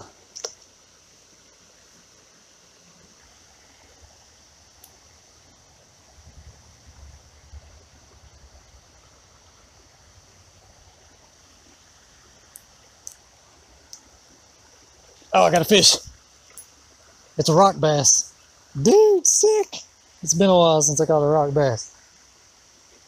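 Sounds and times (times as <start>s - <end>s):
creek water flowing: 0.0s - 23.0s.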